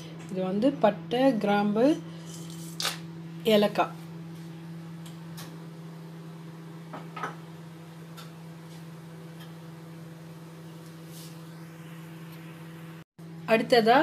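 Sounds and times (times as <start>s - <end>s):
low hum: 3.4s - 13.5s.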